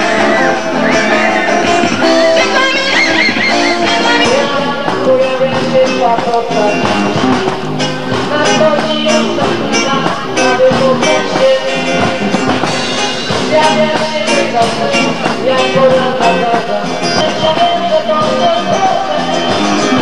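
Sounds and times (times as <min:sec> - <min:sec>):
drum kit beat: 0:00.0 - 0:20.0
electric guitars: 0:00.0 - 0:20.0.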